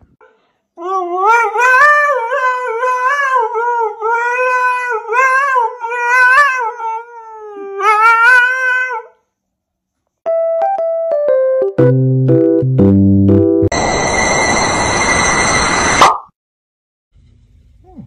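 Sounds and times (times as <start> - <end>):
dog howling: 0.8 - 9.2
keyboard melody: 10.2 - 13.8.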